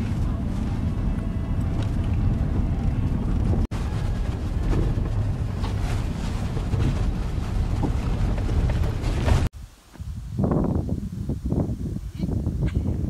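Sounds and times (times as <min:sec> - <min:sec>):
tyres and engine rumbling: 0:00.0 - 0:09.5
rattles and knocks from bumps: 0:01.6 - 0:09.5.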